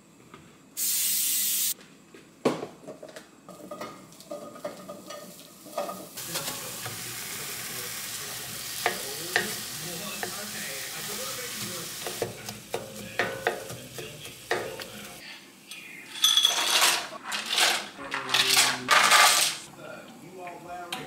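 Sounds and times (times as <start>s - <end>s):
food sizzling in a pan: 0.8s - 1.8s, 3.5s - 15.2s
loud hiss: 0.8s - 1.8s, 6.2s - 15.2s
knocks and clatters in pan: 2.6s - 7.0s, 8.6s - 10.4s, 11.6s - 15.2s
spatula scraping a pan: 3.5s - 15.2s.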